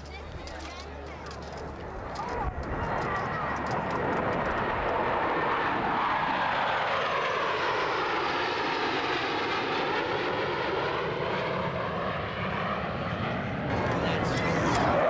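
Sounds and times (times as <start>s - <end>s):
jets flying by: 13.0s - 15.0s.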